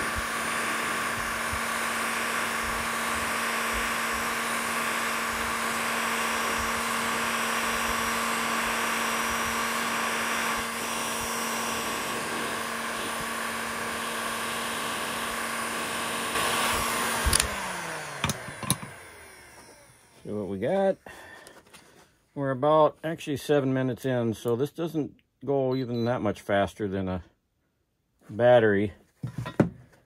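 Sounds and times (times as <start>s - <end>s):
heat gun blowing hot air: 0.0s - 20.4s.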